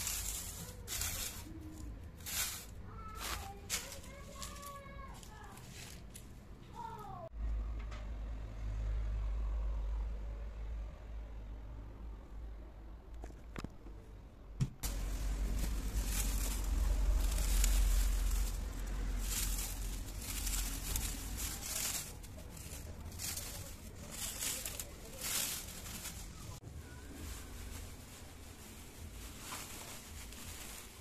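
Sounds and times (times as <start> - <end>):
plastic bag crinkling: 0.0 - 6.4, 14.8 - 31.0
low rumble: 14.8 - 31.0.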